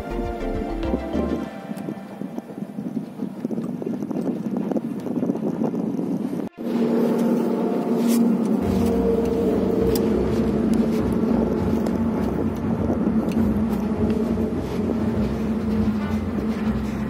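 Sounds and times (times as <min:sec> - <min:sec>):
deeper rumble: 0:06.5 - 0:17.0
vehicle engine running: 0:07.9 - 0:17.0.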